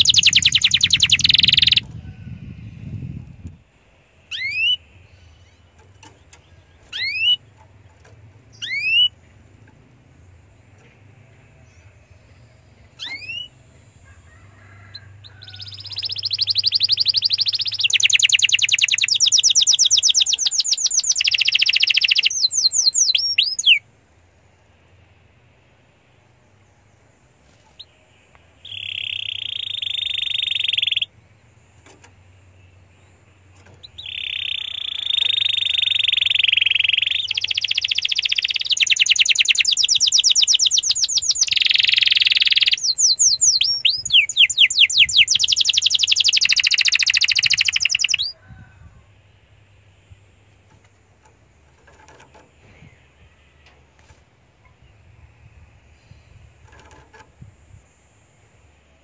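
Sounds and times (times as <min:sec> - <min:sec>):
canary singing trills: 0:00.0 - 0:23.9, 0:27.4 - 0:58.7.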